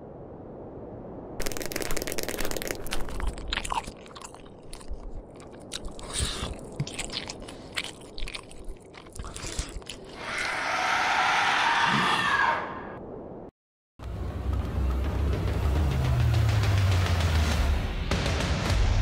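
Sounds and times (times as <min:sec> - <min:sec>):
gory crunching and cracking: 0:01.4 - 0:10.2.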